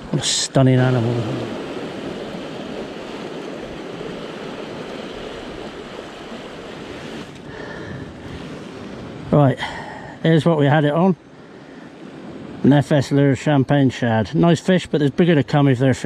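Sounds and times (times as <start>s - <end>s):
waves washing against rocks: 0.0s - 9.3s.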